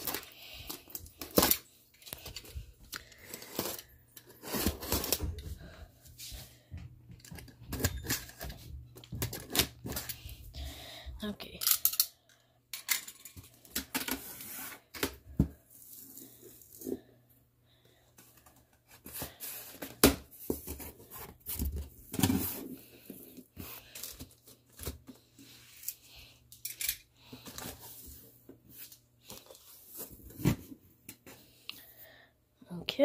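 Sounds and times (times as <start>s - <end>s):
cardboard tearing and scraping: 3.5s - 5.2s.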